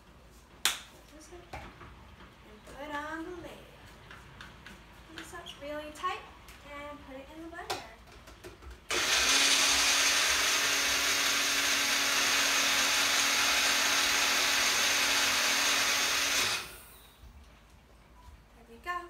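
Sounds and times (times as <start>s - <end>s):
blender whirring: 8.9s - 17.1s.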